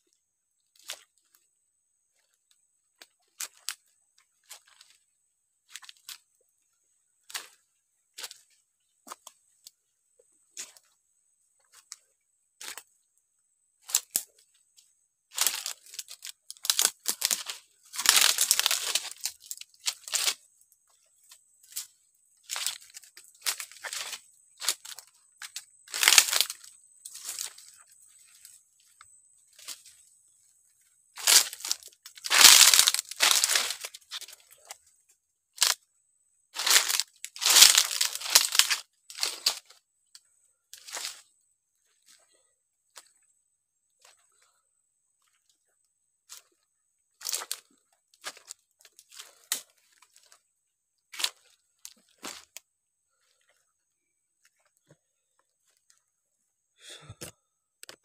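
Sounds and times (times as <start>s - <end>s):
dry leaves rustling and crackling: 15.3s - 20.4s, 22.5s - 28.4s, 31.2s - 34.4s, 36.6s - 39.7s.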